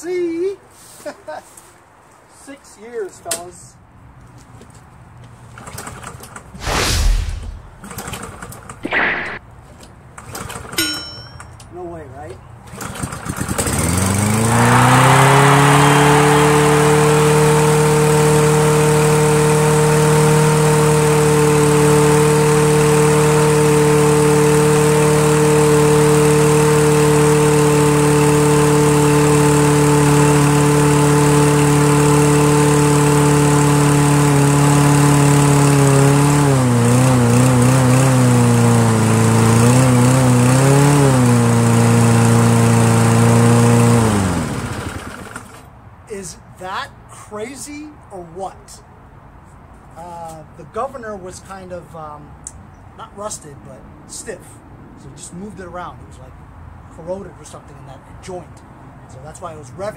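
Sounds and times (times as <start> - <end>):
lawn mower engine running: 7.5 - 9.4, 10.2 - 11.5, 12.6 - 45.7.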